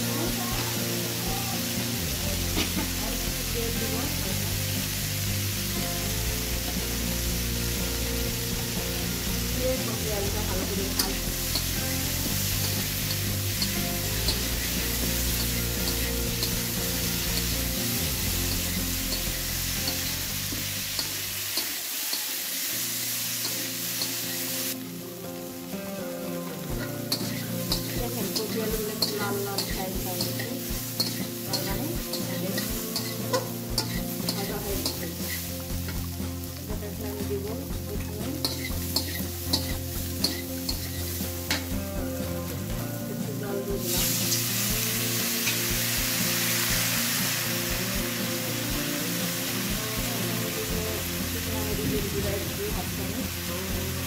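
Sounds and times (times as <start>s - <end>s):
vegetables sizzling in oil: 0.0s - 54.0s
metal spatula clinking on pan: 31.0s - 35.0s, 38.4s - 41.7s.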